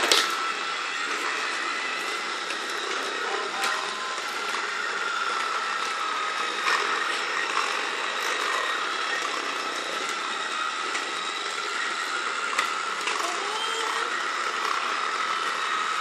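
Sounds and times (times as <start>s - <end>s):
plastic wheels clicking and rattling: 0.0s - 0.4s
toy train motor whine: 0.0s - 16.0s.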